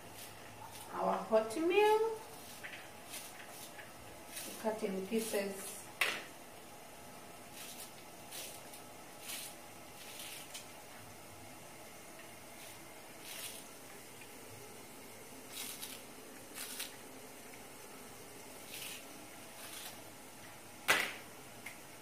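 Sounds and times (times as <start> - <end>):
knife cutting herbs: 0.0 - 5.5, 7.5 - 10.7, 12.6 - 13.7, 15.5 - 17.0, 18.6 - 20.0.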